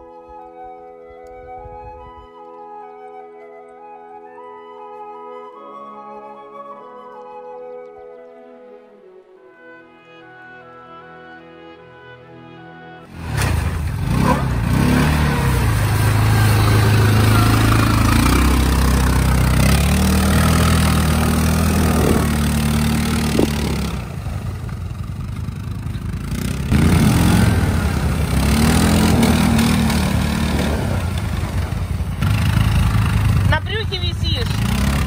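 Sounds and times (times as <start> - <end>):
vehicle engine revving: 13.1 - 35.0.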